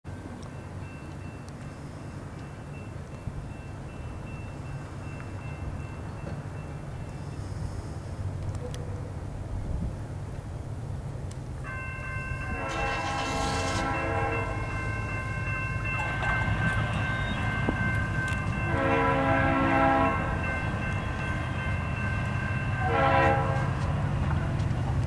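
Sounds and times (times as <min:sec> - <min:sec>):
crossing signal ringing: 0:00.1 - 0:07.5, 0:11.6 - 0:24.1
diesel engines rumbling: 0:00.1 - 0:25.0
locomotive air horn blasts: 0:12.4 - 0:14.7, 0:18.6 - 0:20.5, 0:22.7 - 0:23.9.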